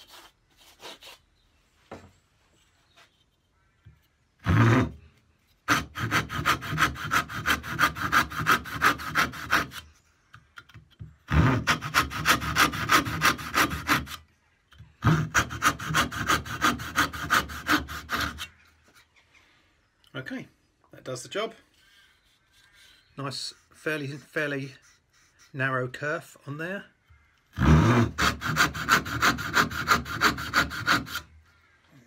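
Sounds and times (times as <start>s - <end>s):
hand saw cutting wood: 4.4s - 5.0s, 5.6s - 9.9s, 11.3s - 14.2s, 15.0s - 18.6s, 27.6s - 31.3s.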